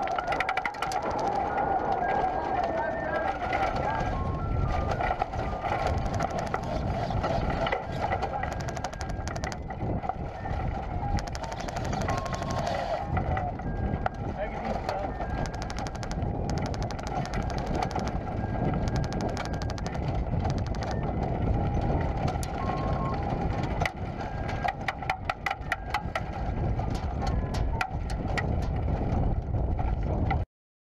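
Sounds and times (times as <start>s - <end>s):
rapid rattling clicks: 5.9s - 9.6s, 11.1s - 12.9s, 15.2s - 18.2s, 18.8s - 21.0s.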